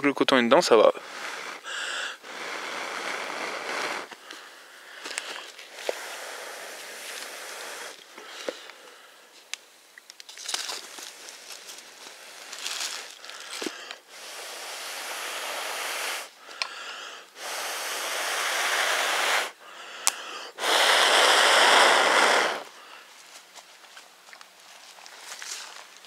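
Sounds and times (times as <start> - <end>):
man blowing hard: 0.8 - 4.5, 5.3 - 8.5, 12.1 - 22.8
dry fibres rustling: 1.0 - 14.2, 22.9 - 26.0.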